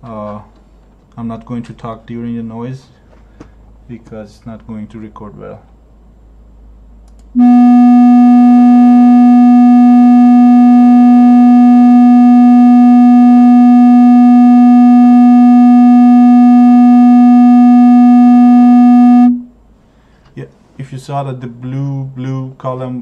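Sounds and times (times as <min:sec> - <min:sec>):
loud steady test tone: 0:07.4 - 0:19.6.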